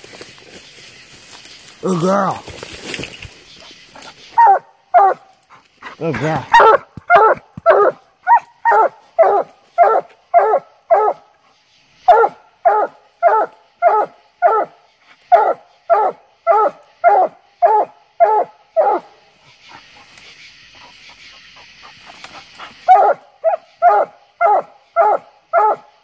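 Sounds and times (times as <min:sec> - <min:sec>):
dog barking rhythmically: 0:04.4 - 0:05.2, 0:06.2 - 0:11.3, 0:12.1 - 0:19.1, 0:22.8 - 0:26.0.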